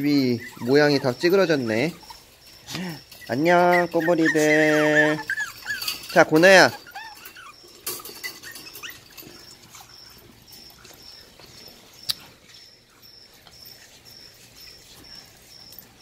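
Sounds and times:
puppies whimpering: 0.0s - 16.0s
faint high chirp: 7.0s - 16.0s.

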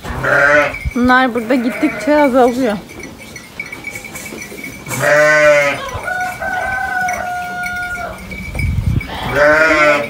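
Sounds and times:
sheep bleating: 0.1s - 0.8s, 1.4s - 2.5s, 4.9s - 6.0s, 9.1s - 10.0s
rooster crowing: 5.3s - 8.4s.

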